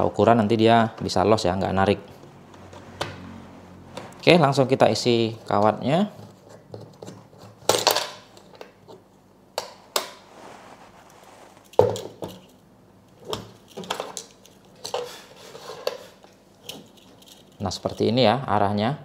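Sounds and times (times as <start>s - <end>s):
light rustle: 10.3s - 12.6s
metallic clinks and knocks: 16.6s - 18.0s.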